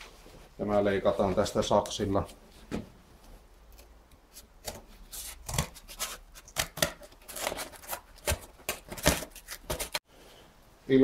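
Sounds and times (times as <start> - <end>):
scissors cutting cardboard: 4.6 - 10.0.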